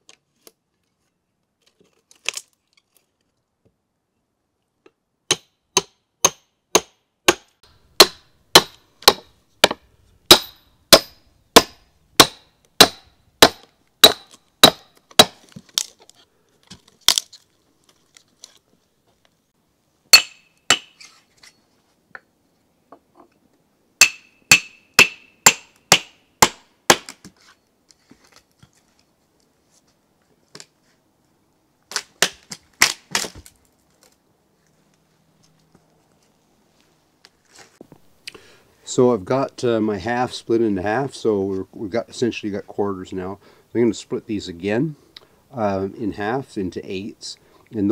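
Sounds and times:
log cracking: 0:01.6 - 0:03.4, 0:13.4 - 0:18.7, 0:31.9 - 0:34.2
hammer blows on steel wedges: 0:05.3 - 0:15.4, 0:20.1 - 0:21.1, 0:24.0 - 0:27.1.

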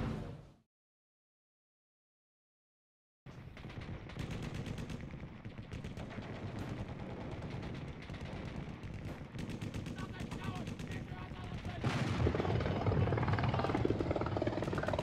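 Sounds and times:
low fire rumble: 0:10.9 - 0:15.0.

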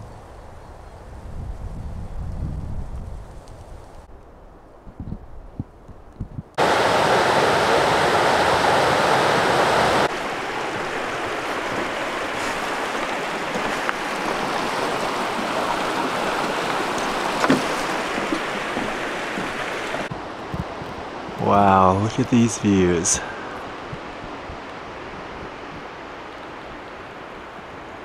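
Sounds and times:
rushing mountain stream: 0:06.6 - 0:28.0.

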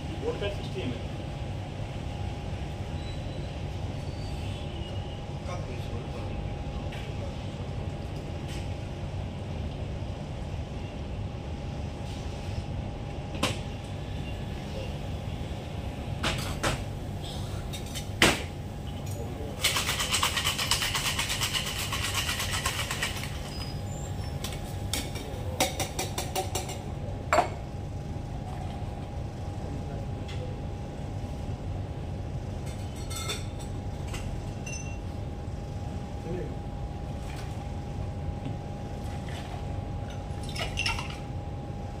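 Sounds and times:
ice rattling in cocktail shaker: 0:19.5 - 0:23.8, 0:40.4 - 0:41.2.

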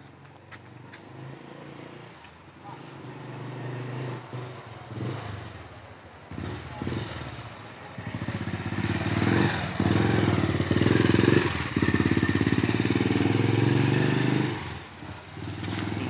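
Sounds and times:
motorcycle engine running: 0:06.3 - 0:16.0.

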